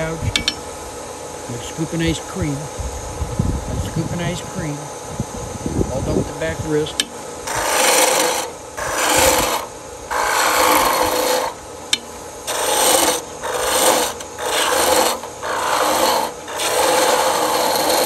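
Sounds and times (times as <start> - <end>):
lathe gouge scraping wood: 7.4 - 11.6, 12.4 - 18.0.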